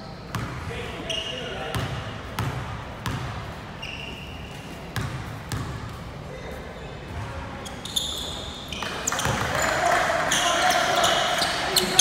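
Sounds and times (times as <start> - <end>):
gym hall noise: 0.0 - 12.0
basketball bouncing on court: 0.3 - 0.7, 1.7 - 3.4, 4.9 - 6.0, 8.7 - 10.0.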